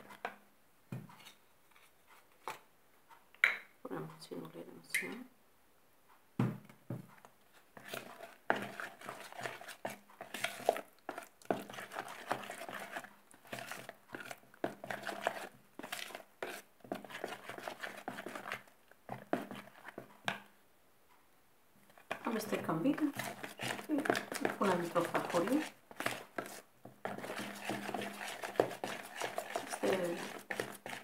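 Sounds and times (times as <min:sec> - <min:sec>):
metal spoon scraping a bowl: 0:07.8 - 0:18.6, 0:22.1 - 0:31.0.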